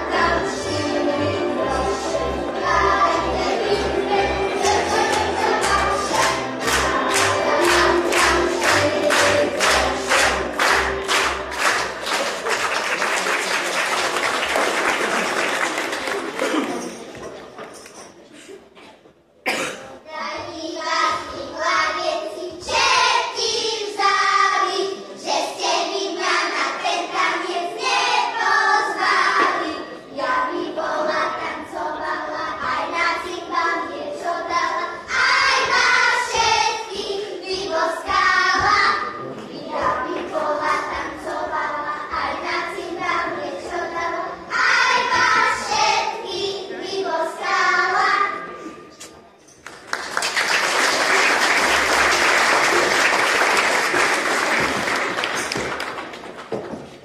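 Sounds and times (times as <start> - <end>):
children singing: 0.0 - 12.4, 20.2 - 48.9.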